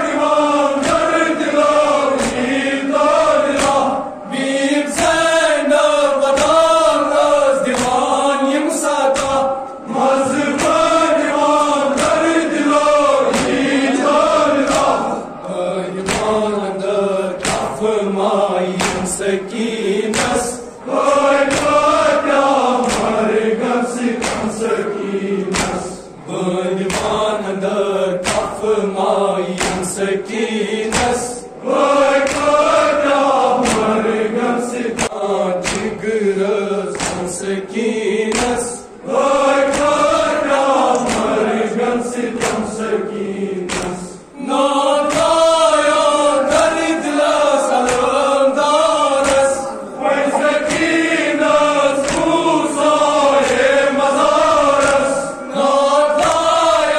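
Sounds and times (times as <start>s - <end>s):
group chanting in unison: 0.0s - 56.9s
sharp rhythmic beats: 50.1s - 51.3s.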